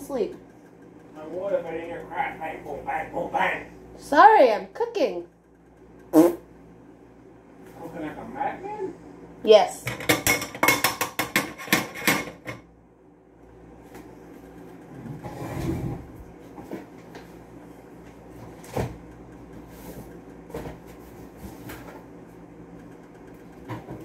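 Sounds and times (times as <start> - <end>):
low steady hum: 0.0 - 24.0
pots and pans clanking: 9.8 - 12.6.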